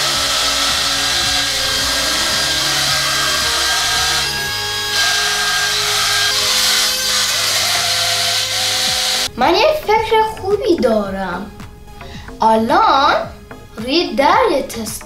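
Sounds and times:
toy car fan whirring: 0.0 - 9.3.

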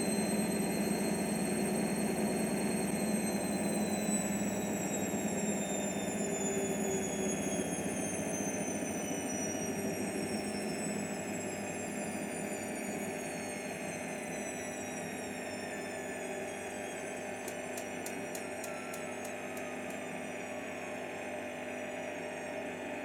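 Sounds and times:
washing machine motor whine: 0.0 - 23.0
fast light ticks: 17.4 - 20.0.

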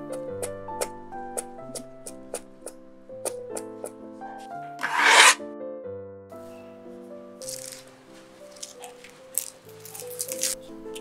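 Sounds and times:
knife scraping garlic skin: 4.8 - 5.4, 9.4 - 10.6.

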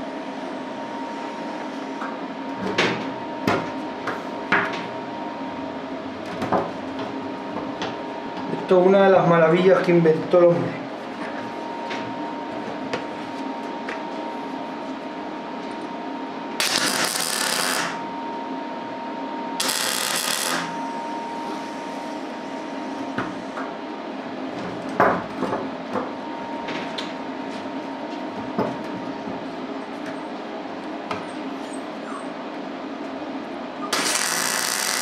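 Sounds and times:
welding arc crackling hiss: 16.6 - 18.0, 19.6 - 20.8, 33.9 - 35.0.

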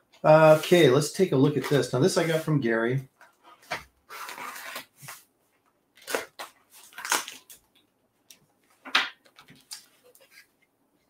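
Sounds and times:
tape and cardboard tearing: 3.7 - 5.2, 6.0 - 7.6.

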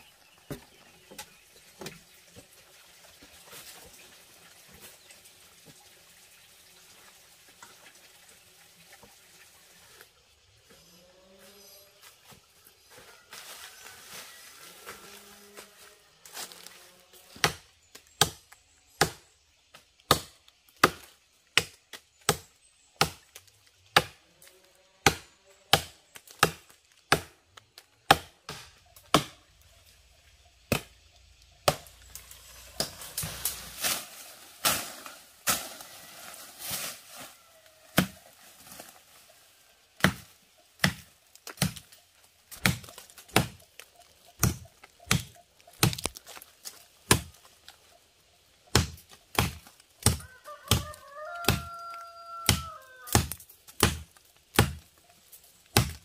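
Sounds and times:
blade chopping wood: 40.0 - 41.9, 42.5 - 43.6, 44.4 - 46.4, 47.0 - 47.4, 48.7 - 51.7, 52.5 - 54.9, 55.7 - 56.0.

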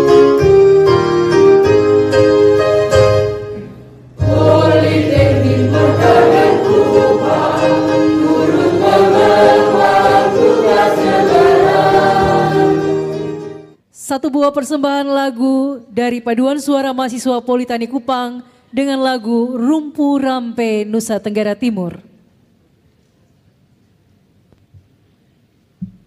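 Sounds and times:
keyboard notes: 0.0 - 13.8
choir singing in harmony: 4.2 - 13.7.

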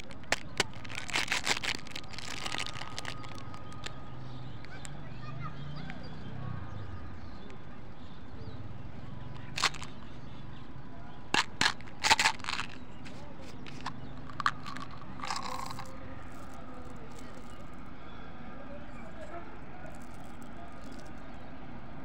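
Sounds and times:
candies rattling into hand: 0.0 - 4.0, 9.4 - 10.0, 11.3 - 17.8, 19.0 - 21.3
plastic cap clicking: 9.6 - 9.9, 11.4 - 17.6.

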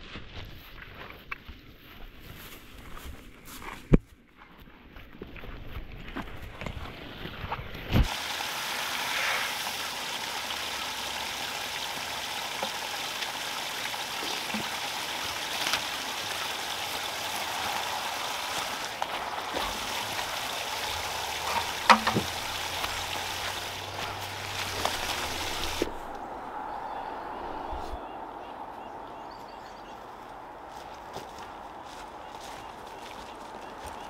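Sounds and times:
running water hissing: 8.0 - 26.1.

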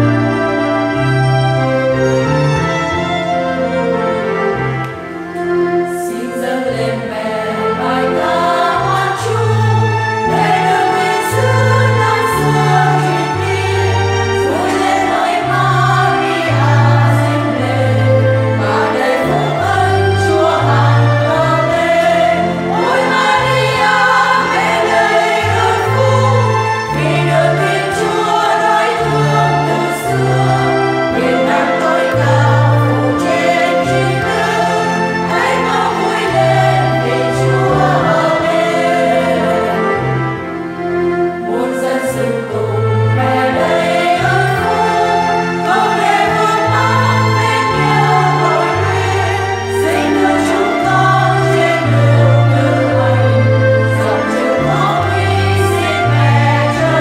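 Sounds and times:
held low accompaniment notes: 0.0 - 57.0
women's choir singing a hymn: 0.0 - 57.0.

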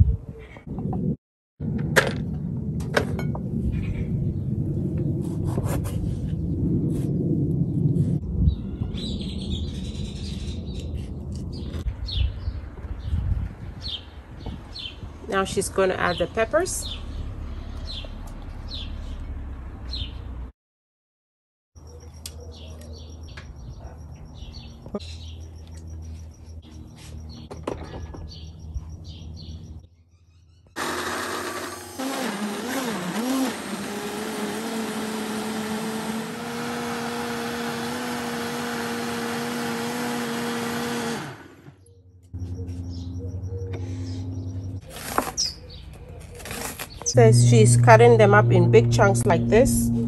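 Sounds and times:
birds chirping: 8.4 - 20.3, 21.8 - 31.3, 41.6 - 50.0
low outdoor hum: 21.8 - 29.8, 41.2 - 50.0
countertop blender whirring: 30.8 - 41.7.

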